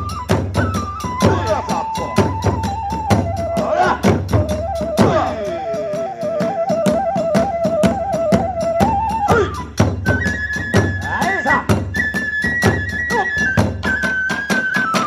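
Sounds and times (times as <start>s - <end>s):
bamboo flute trilling: 0.0s - 15.0s.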